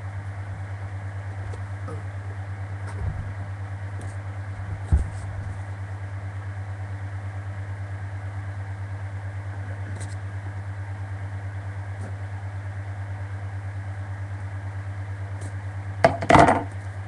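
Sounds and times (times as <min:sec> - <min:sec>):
low pulsing hum: 0:00.0 - 0:17.0.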